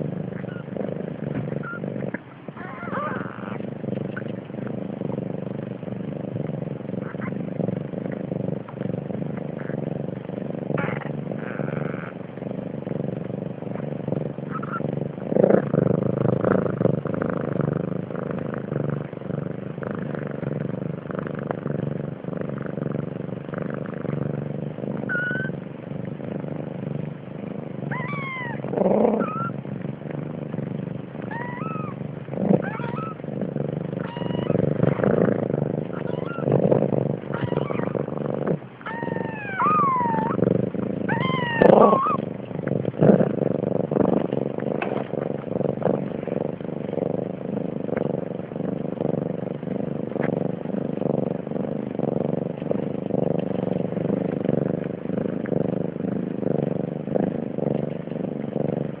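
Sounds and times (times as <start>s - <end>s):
cat purring: 0.0s - 59.0s
kittens squeaking: 1.5s - 1.8s, 2.6s - 3.6s, 25.1s - 25.5s, 27.9s - 28.6s, 29.2s - 29.6s, 31.3s - 32.0s, 32.6s - 33.2s, 34.0s - 35.0s, 35.9s - 36.5s, 37.3s - 38.0s, 38.8s - 40.4s, 41.1s - 42.2s.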